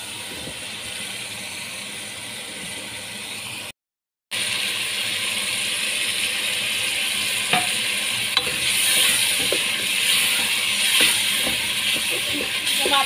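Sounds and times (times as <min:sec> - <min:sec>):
vegetables sizzling in oil: 0:04.4 - 0:13.0.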